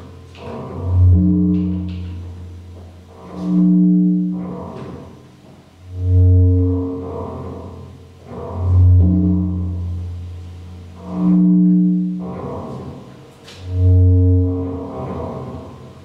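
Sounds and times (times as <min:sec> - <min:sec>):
deep sustained synthesizer bass tones: 0:00.0 - 0:16.0
higher held synthesizer tones: 0:00.8 - 0:02.6, 0:05.9 - 0:07.2, 0:10.9 - 0:12.3, 0:13.7 - 0:14.8.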